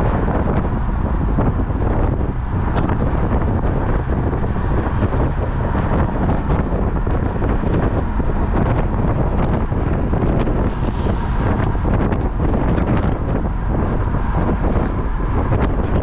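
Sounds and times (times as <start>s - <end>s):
car tyre and road noise: 0.0s - 16.0s
wind buffeting microphone: 0.0s - 16.0s.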